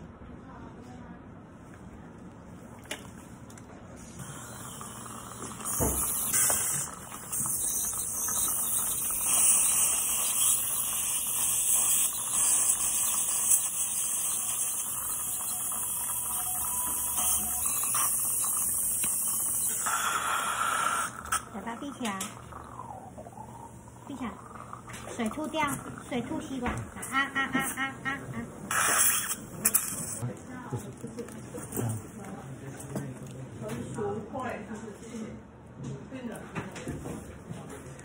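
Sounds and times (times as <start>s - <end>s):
dental instruments hissing: 4.2s - 28.0s, 28.7s - 30.2s.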